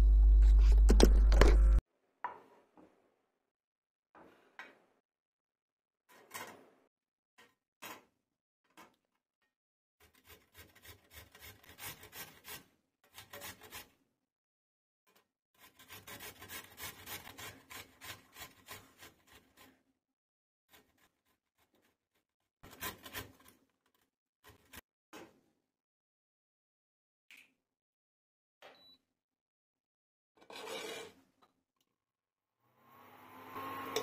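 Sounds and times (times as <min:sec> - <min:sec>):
carrots rasping on metal grater: 0:10.0 - 0:14.0, 0:15.1 - 0:19.8, 0:22.6 - 0:23.6.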